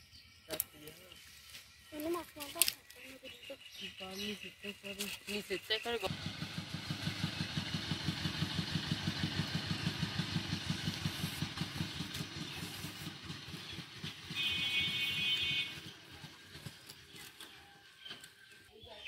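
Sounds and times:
small engine idling: 0:05.0 - 0:18.7.

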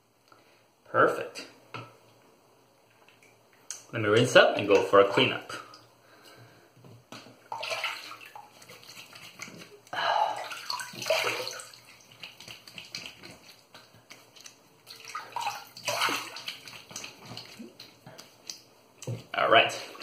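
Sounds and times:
water splashing in sink: 0:07.2 - 0:20.0.

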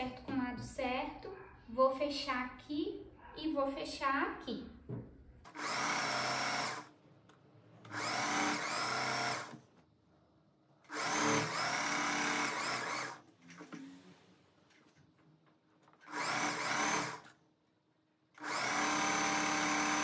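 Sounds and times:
electric sewing machine stitching: 0:05.5 - 0:06.9, 0:07.8 - 0:09.6, 0:10.9 - 0:13.2, 0:16.0 - 0:17.4, 0:18.4 - 0:20.0.

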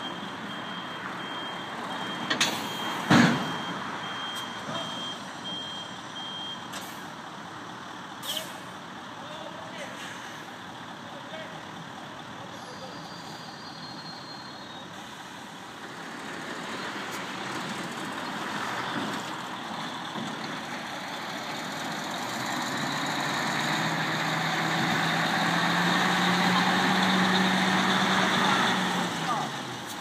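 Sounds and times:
truck diesel engine passing: 0:15.0 - 0:30.0.

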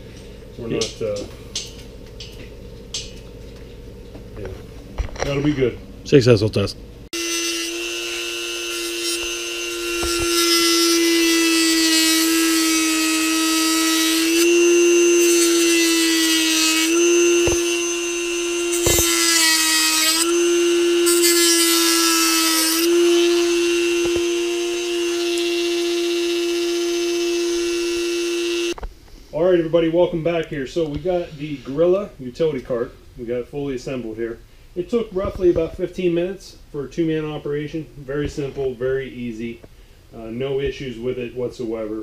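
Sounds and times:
rotary tool whining: 0:07.2 - 0:28.8
cutting wheel rasping on plastic: 0:07.4 - 0:24.3.

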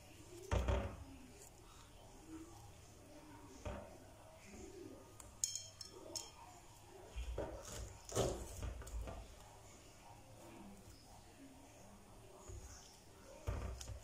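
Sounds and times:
soft knocks and handling noises: 0:03.5 - 0:04.7, 0:07.2 - 0:09.6, 0:12.3 - 0:14.0
utensils clinking on glass bowl: 0:05.4 - 0:06.6
knife slicing banana: 0:07.4 - 0:09.6.

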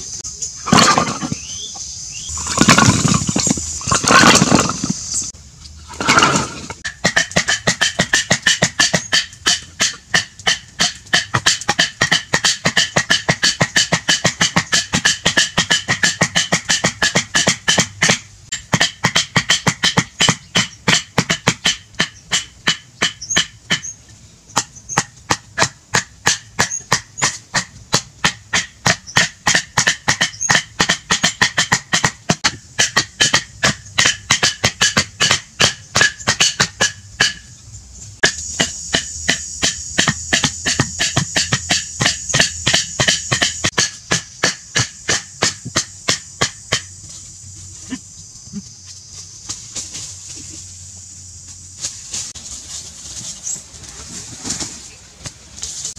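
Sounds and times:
wooden clubs knocking on stakes: 0:00.6 - 0:01.6, 0:02.3 - 0:05.0, 0:05.9 - 0:37.5, 0:38.2 - 0:47.2.

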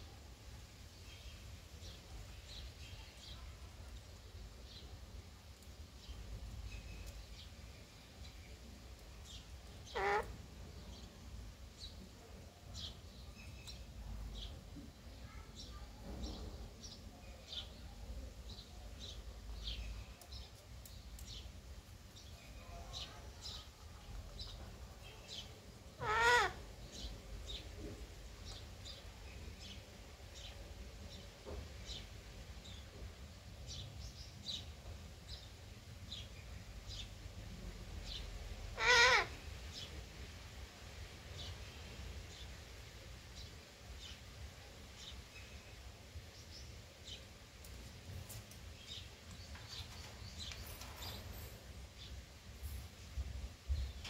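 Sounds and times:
parrot chirping: 0:09.9 - 0:10.3, 0:26.0 - 0:26.6, 0:38.8 - 0:39.4
parrot loud wavering call: 0:09.9 - 0:10.3, 0:26.0 - 0:26.6, 0:38.8 - 0:39.4.

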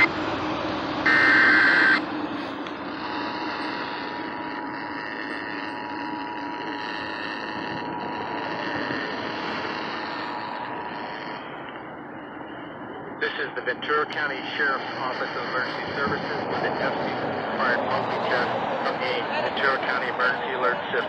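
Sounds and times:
digital data screech: 0:01.1 - 0:02.0
two-tone attention signal: 0:01.1 - 0:02.0, 0:03.0 - 0:07.3.

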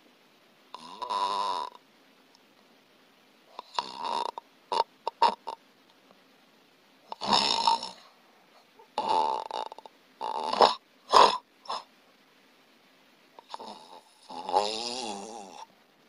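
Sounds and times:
person snoring heavily: 0:00.8 - 0:01.8, 0:03.6 - 0:05.6, 0:07.1 - 0:08.1, 0:09.0 - 0:11.9, 0:13.4 - 0:15.7.

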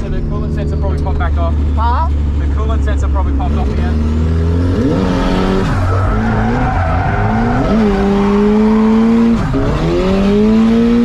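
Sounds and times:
car engine revving high: 0:00.0 - 0:11.0
tyre squeal: 0:05.4 - 0:09.8.

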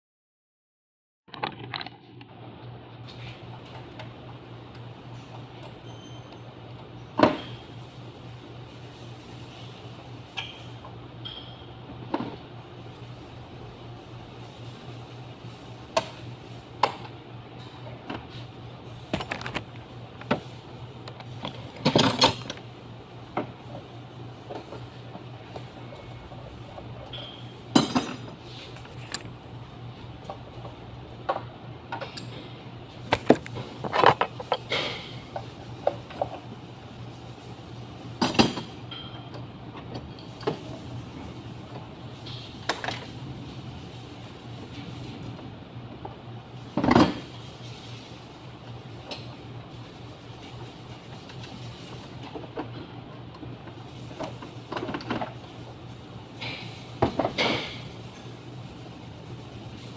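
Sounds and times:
steady low hum: 0:02.0 - 0:59.9
clinks of tools and engine parts: 0:05.6 - 0:06.5, 0:27.1 - 0:28.3.

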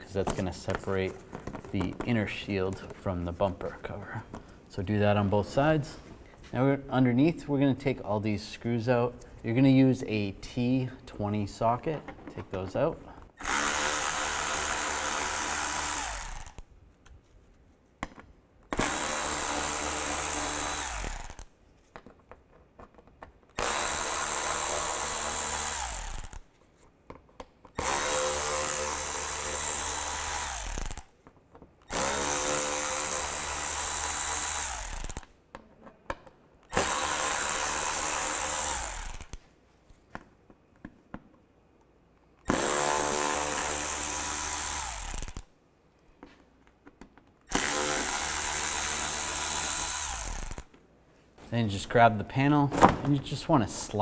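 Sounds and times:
cordless power tool running: 0:13.4 - 0:16.6, 0:18.8 - 0:21.4, 0:23.6 - 0:26.4, 0:27.8 - 0:31.0, 0:31.9 - 0:35.2, 0:36.7 - 0:39.4, 0:42.5 - 0:45.4, 0:47.5 - 0:50.6.

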